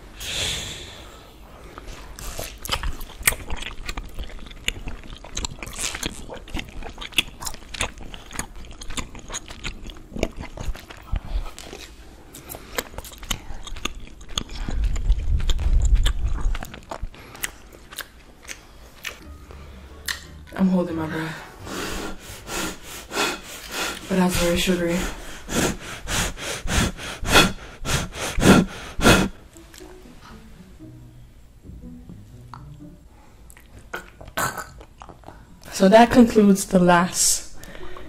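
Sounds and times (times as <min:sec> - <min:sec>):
chewing and wet mouth clicks: 0:01.8 - 0:19.3, 0:20.0 - 0:20.3, 0:33.5 - 0:35.4.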